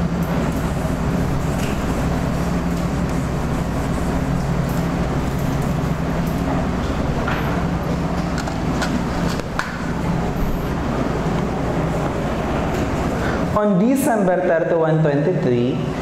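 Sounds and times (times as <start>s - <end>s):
air conditioner humming: 0.0s - 16.0s
whiteboard eraser rubbing: 0.6s - 4.6s.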